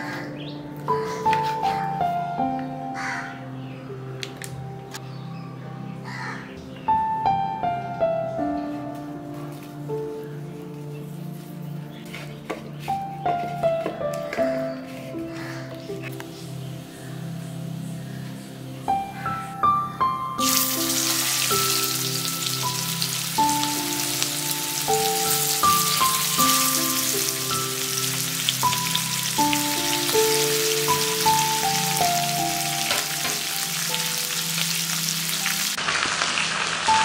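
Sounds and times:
background music: 0:00.0 - 0:37.0
chicken sizzling in hot oil: 0:20.4 - 0:37.0.

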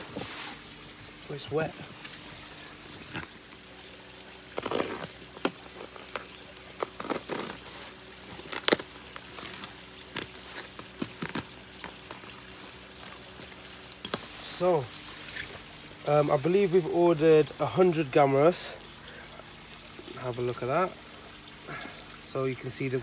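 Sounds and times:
packing tape ripping: 0:04.5 - 0:12.2.

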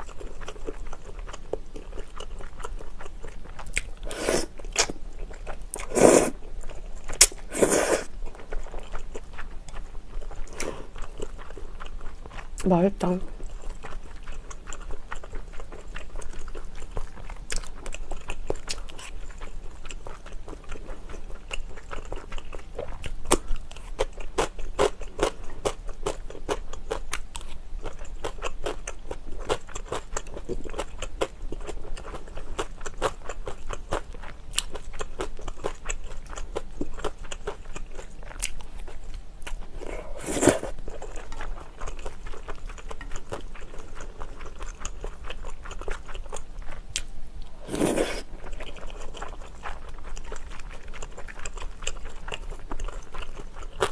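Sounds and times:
person chewing with wet mouth clicks: 0:00.0 - 0:12.5
loud slurp: 0:04.0 - 0:04.5, 0:05.8 - 0:06.4, 0:07.5 - 0:08.1, 0:40.1 - 0:40.7, 0:47.6 - 0:48.3.

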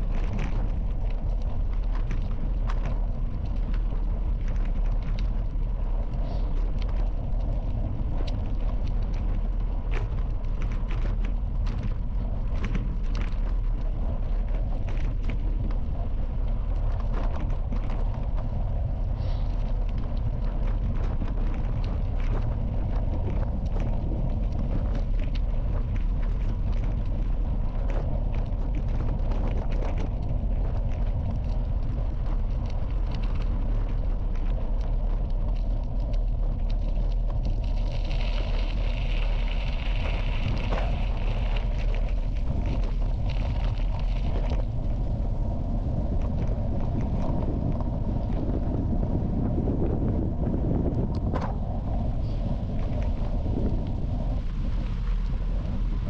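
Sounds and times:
bicycle tyres rumbling on gravel: 0:00.0 - 0:56.0
bike rattling over gravel: 0:00.0 - 0:56.0
wind on microphone: 0:00.0 - 0:56.0.

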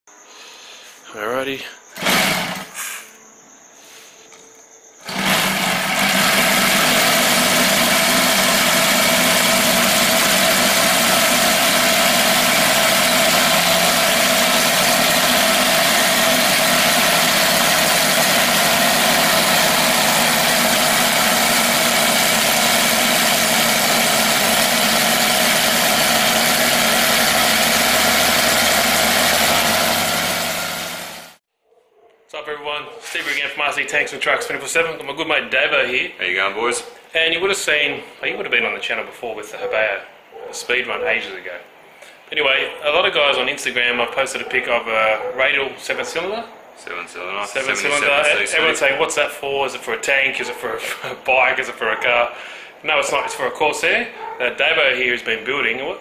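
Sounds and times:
model airplane engine running: 0:02.0 - 0:02.7, 0:05.0 - 0:31.4.

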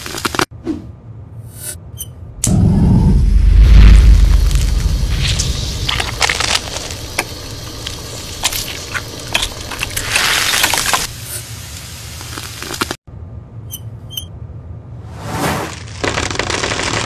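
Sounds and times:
low steady rumble: 0:00.9 - 0:10.0, 0:13.1 - 0:15.4
melting plastic crackling and popping: 0:05.2 - 0:11.1, 0:15.8 - 0:17.0.

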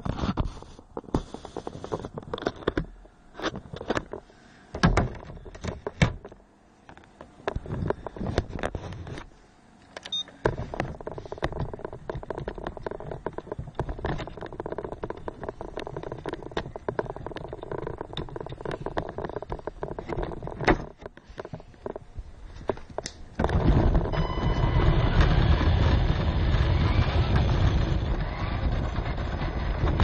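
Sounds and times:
knocks and rattles over paving: 0:10.4 - 0:30.0
toy car motor: 0:24.0 - 0:30.0.

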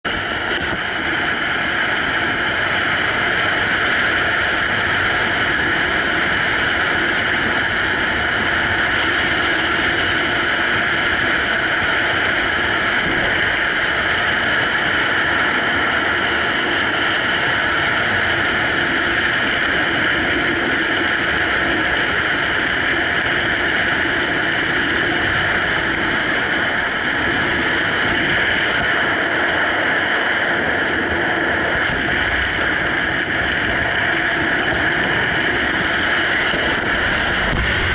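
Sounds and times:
wind rushing over microphone: 0:00.0 - 0:37.9.

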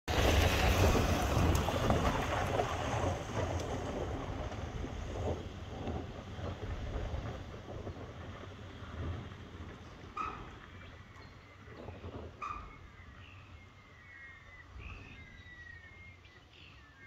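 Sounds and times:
car engine driving away: 0:00.1 - 0:13.4
tyres on dirt: 0:00.1 - 0:17.0
wind rumbling on microphone: 0:00.1 - 0:17.0.

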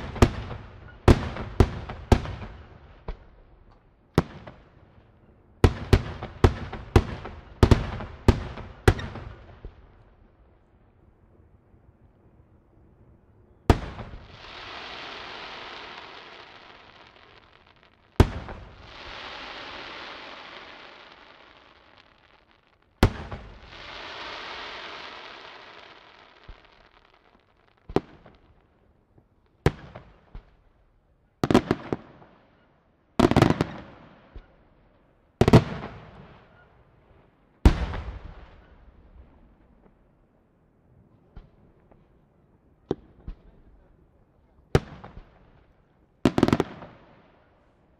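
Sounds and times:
hissing crackle of fireworks: 0:00.0 - 0:04.6, 0:13.7 - 0:30.8, 0:42.9 - 0:47.9.

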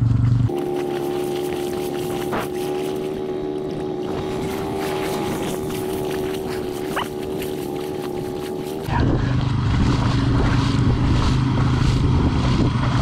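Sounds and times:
engine running steadily: 0:00.0 - 0:13.0
wind noise: 0:08.9 - 0:13.0.

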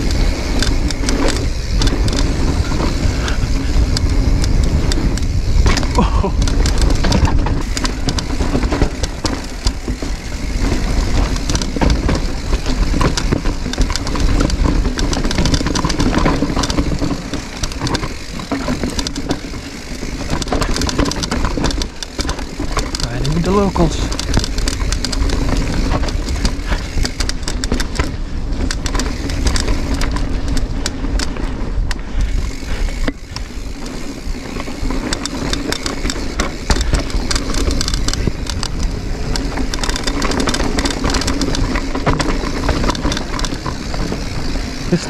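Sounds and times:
wind on microphone: 0:00.0 - 0:09.0
bike rattling over rocks: 0:00.0 - 0:45.0
tyres on dirt: 0:00.0 - 0:45.0.

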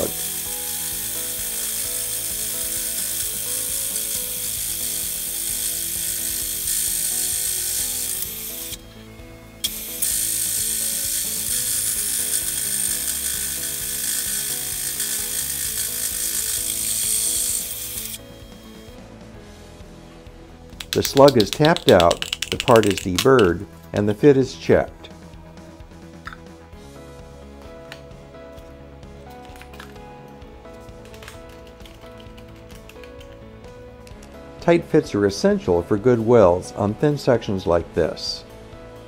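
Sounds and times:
hole saw cutting aluminum: 0:00.0 - 0:08.8, 0:09.6 - 0:18.2.

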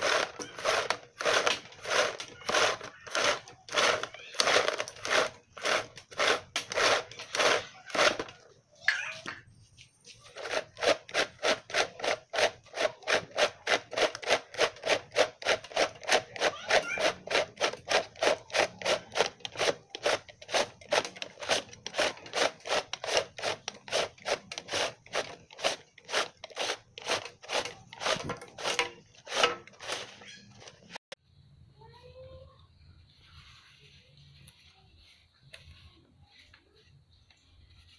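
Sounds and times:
plastic reel rasping scrapes: 0:00.0 - 0:08.4, 0:10.2 - 0:31.0.

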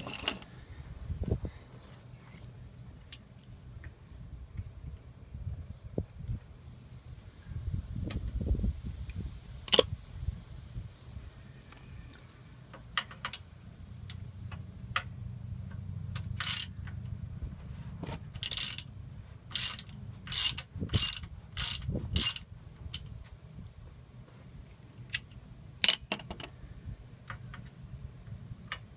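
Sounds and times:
socket ratchet clicking: 0:16.2 - 0:16.8, 0:18.4 - 0:18.9, 0:19.5 - 0:23.1.

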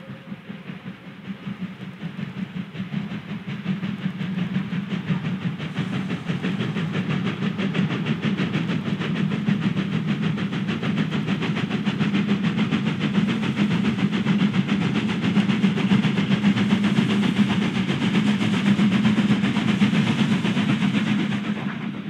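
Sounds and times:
steam locomotives chuffing: 0:00.0 - 0:22.0.

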